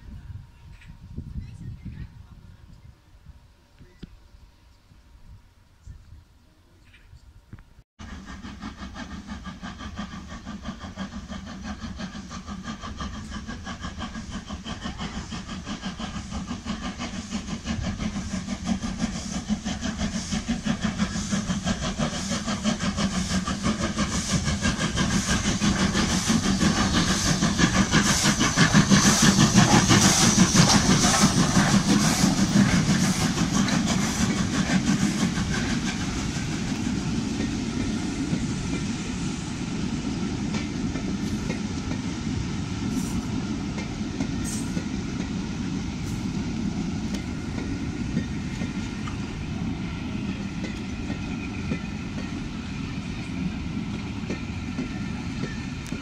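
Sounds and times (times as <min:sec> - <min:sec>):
steam locomotive beat and hiss: 0:00.0 - 0:56.0
train wheels clickety-clack: 0:00.7 - 0:02.0, 0:08.0 - 0:56.0.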